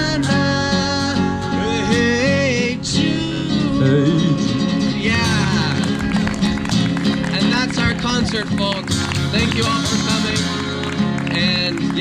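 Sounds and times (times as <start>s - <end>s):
acoustic guitar with sliding melody: 0.0s - 12.0s.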